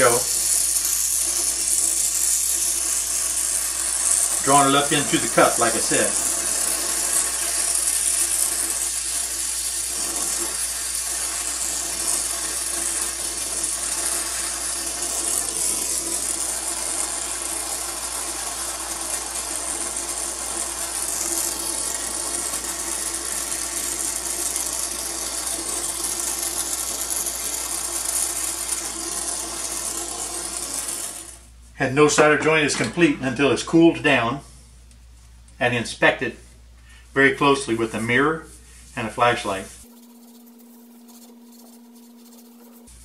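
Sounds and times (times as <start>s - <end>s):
torch flame hissing: 0.0s - 31.5s.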